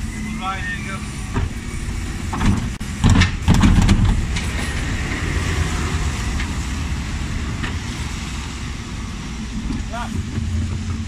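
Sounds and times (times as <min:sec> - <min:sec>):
refuse lorry rumbling: 0:00.0 - 0:11.0
loud clattering knocks: 0:02.3 - 0:04.9.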